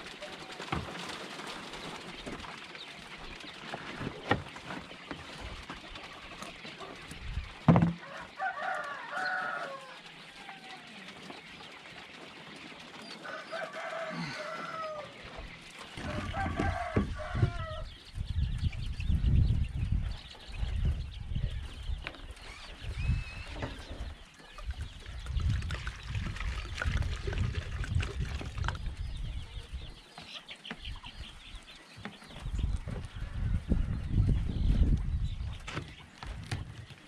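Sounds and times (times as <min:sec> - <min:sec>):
rooster crowing: 0:08.0 - 0:10.9, 0:13.2 - 0:15.2, 0:16.0 - 0:17.9.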